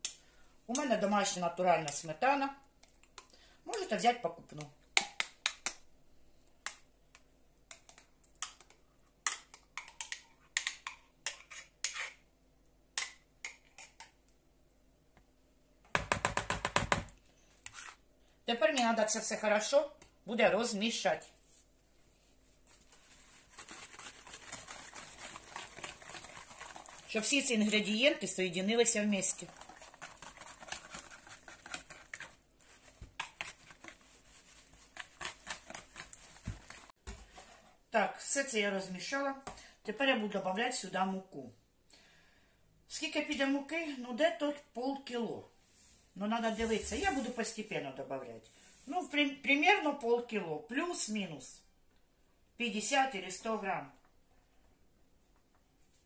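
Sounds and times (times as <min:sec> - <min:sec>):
wet slapping of batter: 0:22.9 - 0:37.2.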